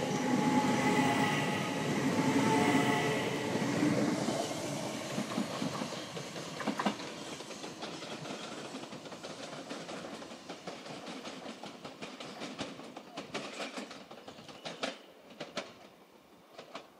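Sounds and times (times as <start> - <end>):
electric train whine and rumble: 0.0 - 15.8
wheels clicking over rail joints: 5.1 - 16.9.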